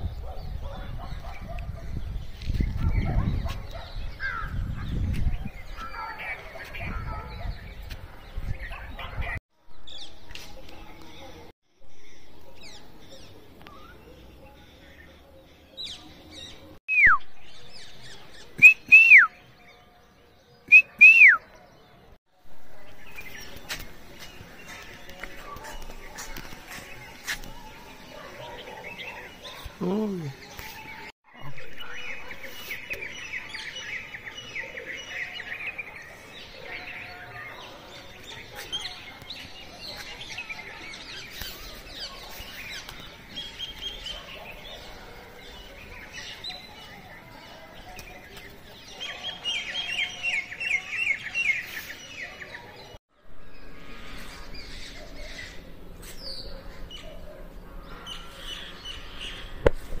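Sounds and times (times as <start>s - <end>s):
birds chirping: 0.0s - 60.0s.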